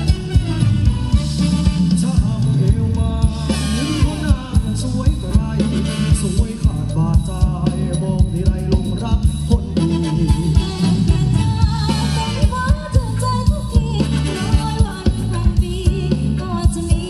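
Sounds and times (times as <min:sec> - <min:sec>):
live band dance music: 0:00.0 - 0:17.0
steady drum beat: 0:00.0 - 0:17.0.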